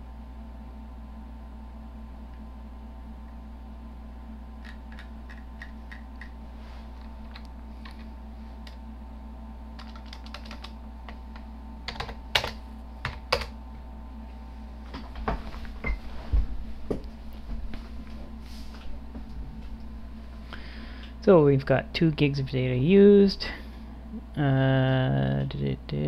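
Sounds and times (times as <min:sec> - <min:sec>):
steady low hum: 0:00.0 - 0:26.0
typing on computer keyboard: 0:09.8 - 0:13.5.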